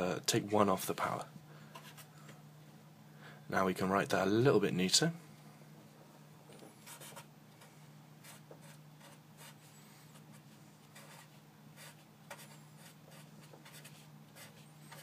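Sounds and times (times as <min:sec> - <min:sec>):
steady low hum: 0:00.0 - 0:15.0
marker writing on paper: 0:06.8 - 0:07.3, 0:08.2 - 0:15.0.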